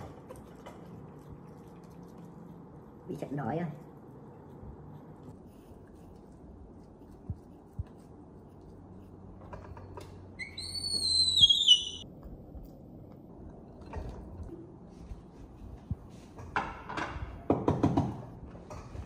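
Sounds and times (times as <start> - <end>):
young monkey squealing: 10.4 - 12.0.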